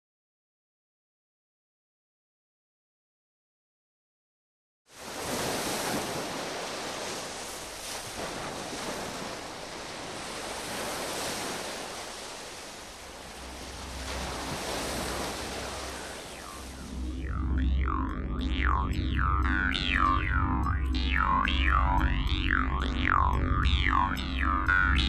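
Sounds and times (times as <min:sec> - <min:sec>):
steady rushing noise: 0:10.4 - 0:25.0
low rumbling drone: 0:13.0 - 0:25.0.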